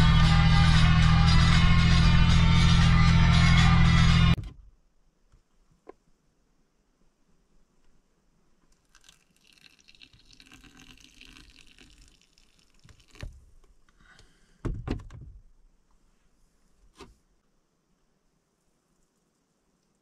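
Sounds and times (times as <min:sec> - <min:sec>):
water trickling into a glass: 0:08.8 - 0:13.2.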